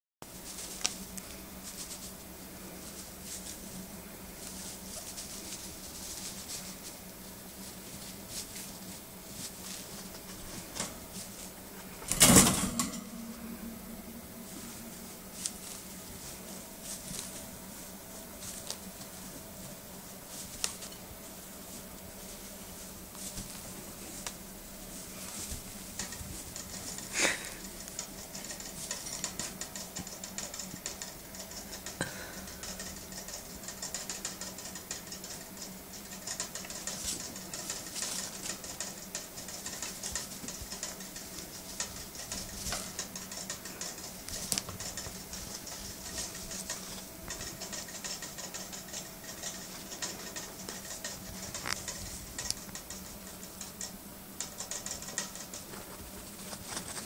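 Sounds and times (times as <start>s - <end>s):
rats scrabbling in wood shavings: 0.2s - 12.0s, 14.2s - 57.0s.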